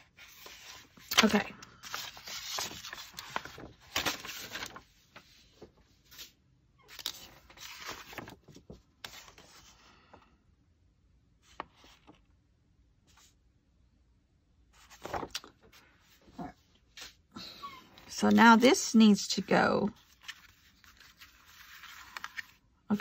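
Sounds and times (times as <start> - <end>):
paper rustling and scraping: 0.0 - 9.8, 14.8 - 17.2, 19.2 - 23.0.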